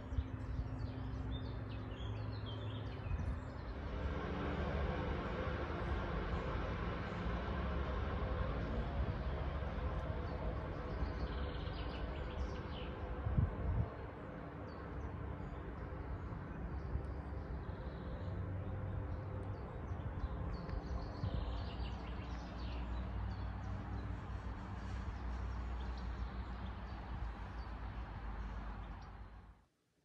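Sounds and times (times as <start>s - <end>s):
steady low rumble: 0.0s - 29.6s
birdsong chirping: 10.2s - 13.2s, 14.6s - 29.4s.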